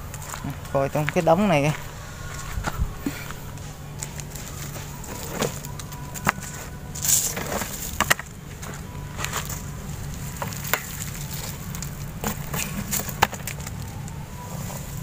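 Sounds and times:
dry leaves rustling and crackling: 0.0 - 15.0
board being moved: 4.8 - 5.7.

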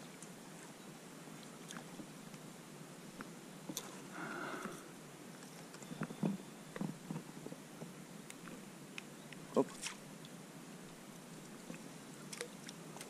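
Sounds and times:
faint hiss: 0.0 - 5.8.

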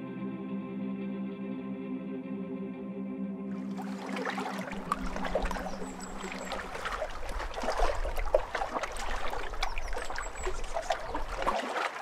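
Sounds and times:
water lapping and trickling: 3.6 - 12.0.

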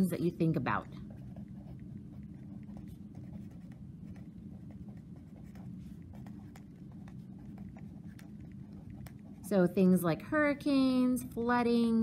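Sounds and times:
low steady hum: 0.0 - 12.0
pen scratching on paper: 1.0 - 9.5.

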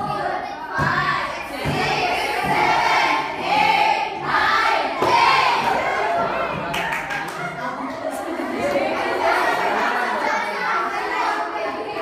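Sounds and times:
many students talking: 0.0 - 12.0.

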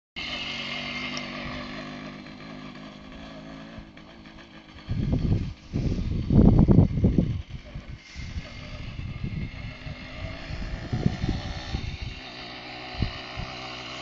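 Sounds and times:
moped engine running: 0.2 - 14.0
wind buffeting microphone: 4.7 - 13.8.

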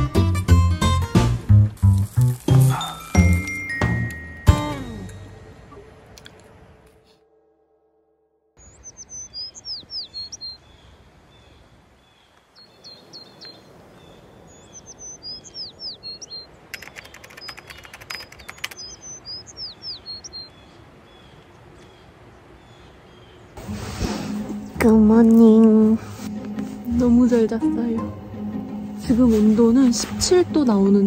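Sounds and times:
rural background hiss: 0.0 - 7.2, 8.6 - 31.0
songbird singing: 8.6 - 23.6
rapid sharp clicks: 16.7 - 19.2.

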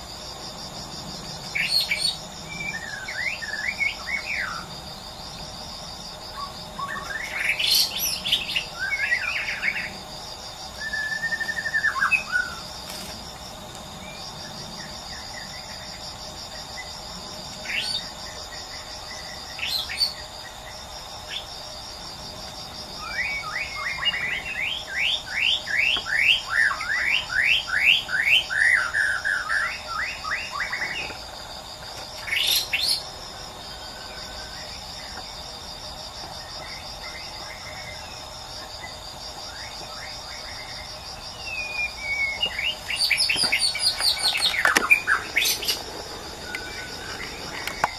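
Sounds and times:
insects chirring: 0.0 - 47.9
bird singing whistles: 10.8 - 12.6.

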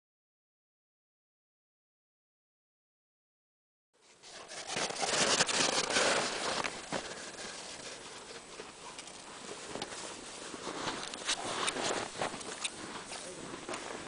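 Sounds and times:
footsteps crunching on snow: 4.0 - 14.0.

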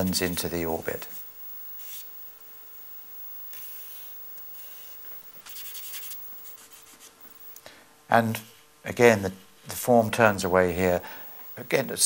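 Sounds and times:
charcoal scraping on paper: 5.4 - 7.2.

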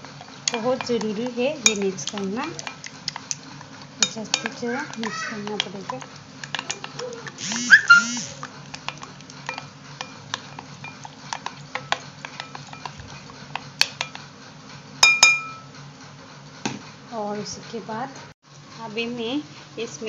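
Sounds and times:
spoon stirring in a bowl: 0.0 - 14.3
spoon clinking against bowl: 0.5 - 3.3, 9.5 - 13.0, 15.0 - 15.7
high-pitched voice-like call: 7.4 - 8.4.

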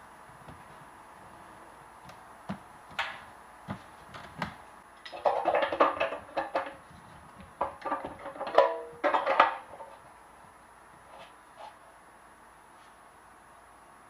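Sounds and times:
metal clattering and clinking: 5.0 - 6.8, 7.6 - 10.0.

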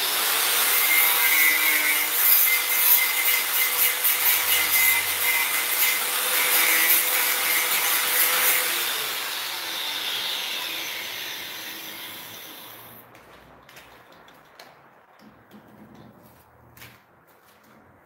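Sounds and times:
power tool running: 5.9 - 13.0.

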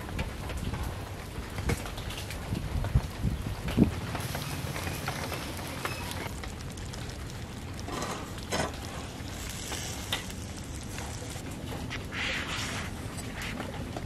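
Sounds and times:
food sizzling on a grill: 3.2 - 11.5.

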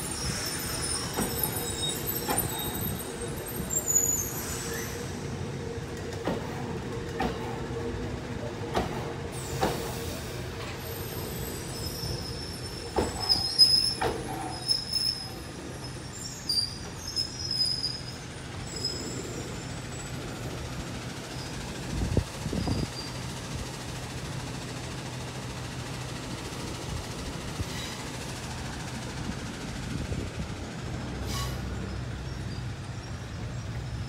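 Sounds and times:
high-pitched wheel squeals: 0.0 - 5.2, 10.9 - 20.1
train wheels clicking over rail joints: 0.1 - 15.8.

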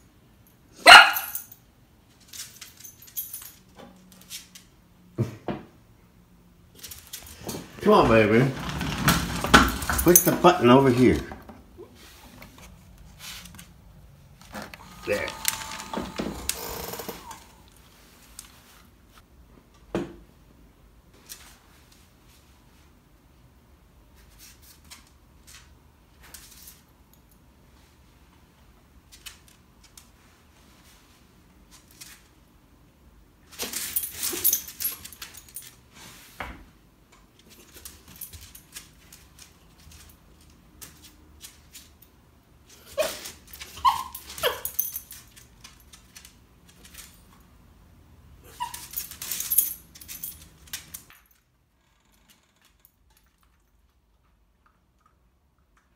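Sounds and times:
rustling and clattering: 6.7 - 17.0
collar tags jingling: 9.7 - 11.2, 48.6 - 51.2
dog claws clicking on wood floor: 37.1 - 42.1, 43.2 - 47.4, 48.7 - 51.4
dog whining: 42.9 - 44.8, 48.4 - 49.2.

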